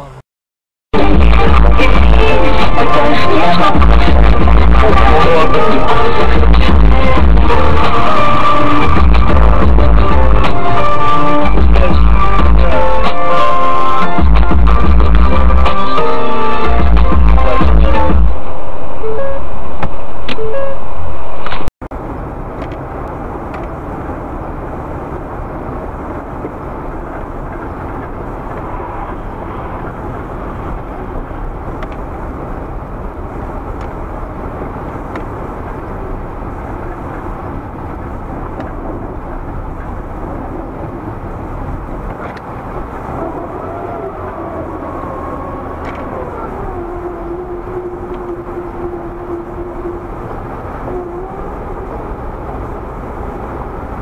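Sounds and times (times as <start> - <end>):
car road and engine noise: 0.0 - 0.2, 0.9 - 54.0
music: 1.0 - 18.3
wavering pitched tone: 43.2 - 52.5.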